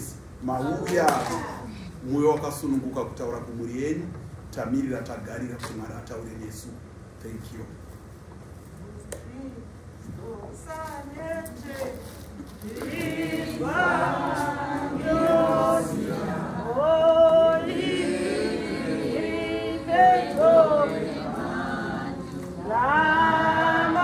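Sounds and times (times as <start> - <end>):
congregation singing: 12.6 - 24.0.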